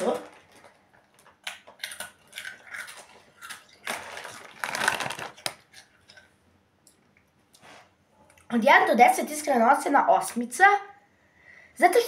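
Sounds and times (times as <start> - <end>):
chip bag rustling: 0.0 - 5.9
tortilla chips being chewed: 0.0 - 6.4.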